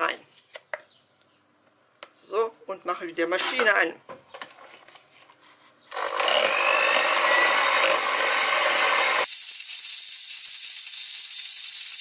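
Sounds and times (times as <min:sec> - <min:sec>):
electric hand mixer running: 0:06.0 - 0:12.0
thin hiss: 0:09.3 - 0:12.0.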